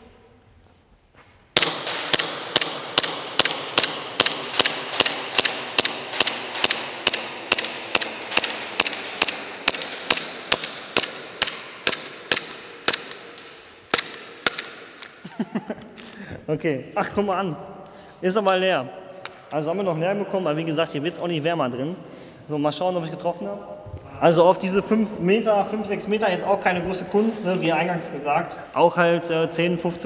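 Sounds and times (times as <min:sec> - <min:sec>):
airsoft pistol shots echoing: 0:01.6 - 0:15.2.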